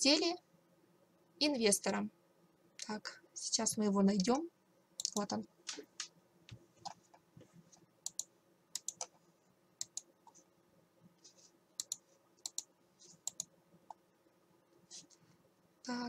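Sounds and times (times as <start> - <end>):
computer mouse clicks: 5.0 - 7.0, 8.0 - 9.2, 9.8 - 10.4, 11.8 - 14.0.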